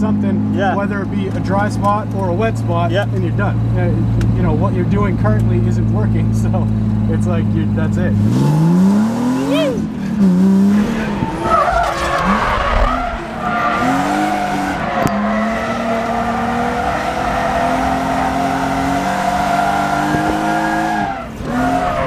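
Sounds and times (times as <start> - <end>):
car engine revving: 0.0 - 22.0
tyres squealing: 10.8 - 22.0.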